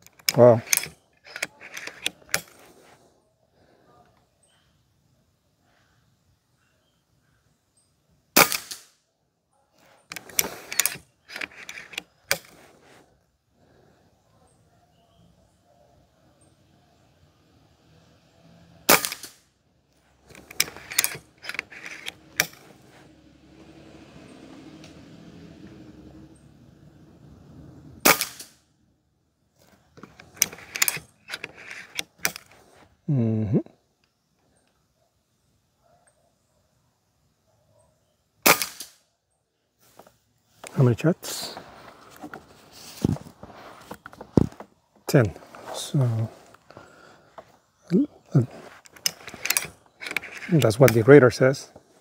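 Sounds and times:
metallic clicks of rifle lever: 0.0 - 2.8, 10.0 - 12.6, 18.9 - 19.4, 20.2 - 22.8, 29.6 - 32.6, 48.8 - 51.1
air rifle shot: 8.4 - 8.8, 18.9 - 19.4, 28.0 - 28.5, 38.4 - 39.0
air rifle shot crack: 28.0 - 28.5
sharp snap: 28.0 - 28.6, 38.5 - 39.0.

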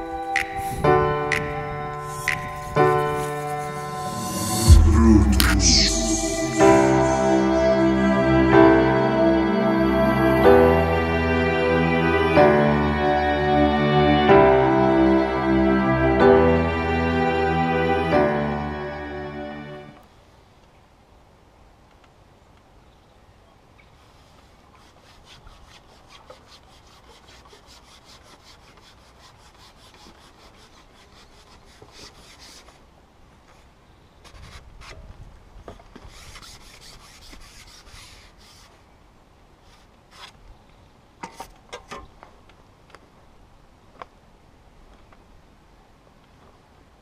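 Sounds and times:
fishing pole rubbing and scraping: 2.0 - 4.7
low rumble: 2.7 - 16.6.

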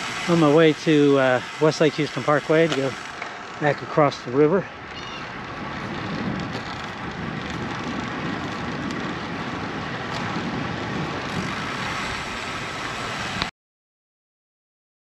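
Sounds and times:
wind rushing over microphone: 3.7 - 13.5.

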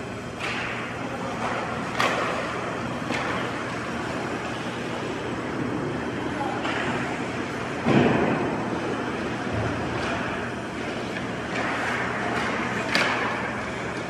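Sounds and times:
arena low hum: 0.0 - 14.0
hockey sticks and puck clacking: 0.4 - 4.6, 9.5 - 14.0.

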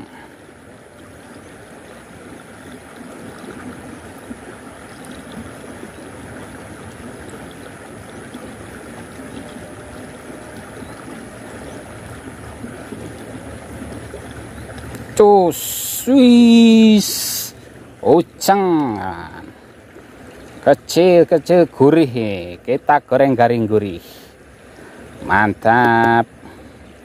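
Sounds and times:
canal water rushing: 0.0 - 27.0.

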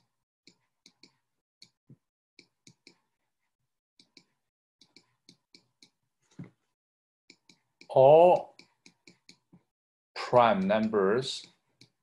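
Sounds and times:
stylus tapping on a tablet: 0.5 - 3.1, 4.0 - 6.6, 7.3 - 9.7.

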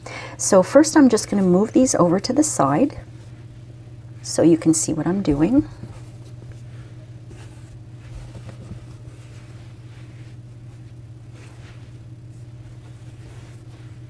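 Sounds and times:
steady low hum: 0.0 - 14.0.

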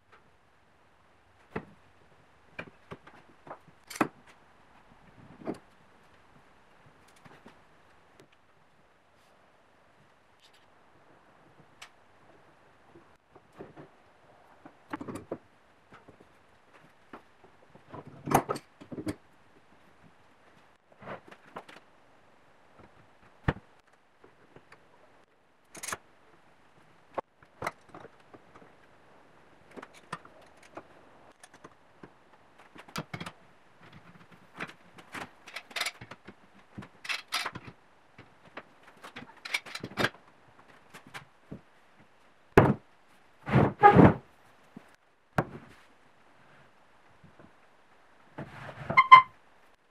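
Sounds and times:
metal clamps clicking and clattering: 3.8 - 4.3, 25.7 - 26.0, 32.6 - 37.8, 39.0 - 40.2.

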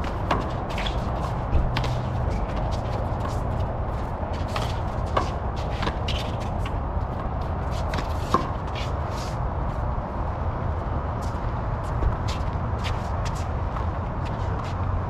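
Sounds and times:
shoes scuffing on court: 0.0 - 9.9, 11.2 - 14.9
steady low rumble: 0.0 - 15.0.

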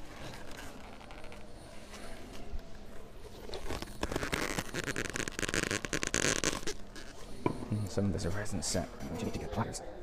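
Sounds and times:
paper towel rubbing plastic bottle: 0.0 - 2.5, 3.2 - 7.3.

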